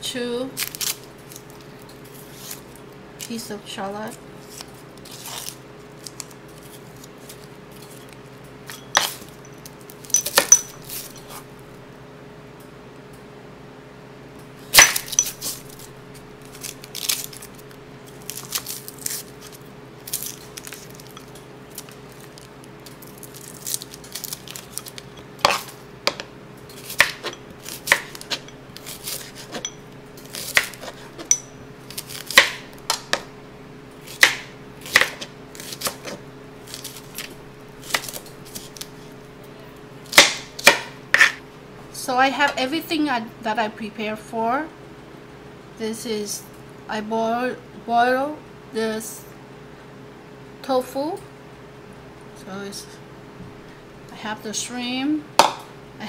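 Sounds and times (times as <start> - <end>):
faint steady hum: 0.0 - 56.0
knife chopping on cutting board: 25.4 - 31.4, 32.0 - 33.3, 34.1 - 38.8, 40.1 - 41.4, 55.4 - 55.6.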